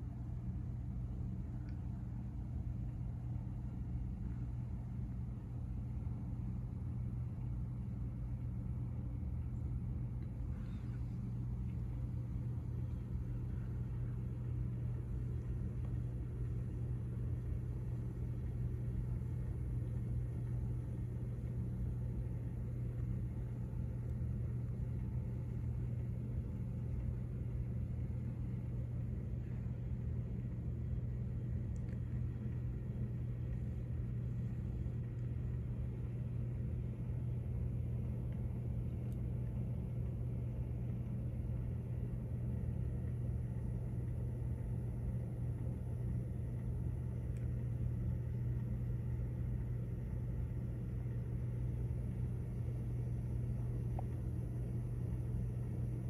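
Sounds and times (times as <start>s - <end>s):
low rumble: 0.0s - 56.0s
steady low hum: 0.0s - 56.0s.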